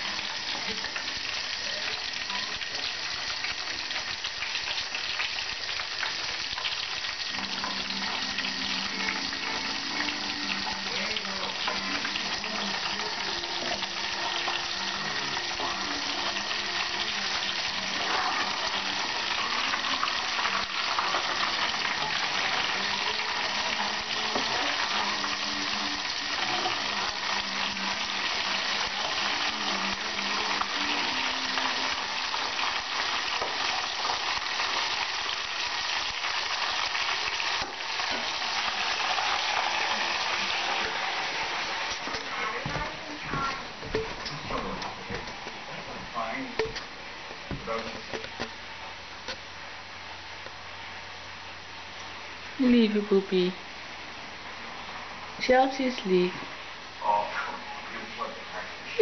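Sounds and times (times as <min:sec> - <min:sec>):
food deep-frying in hot oil: 0:00.0 - 0:59.0.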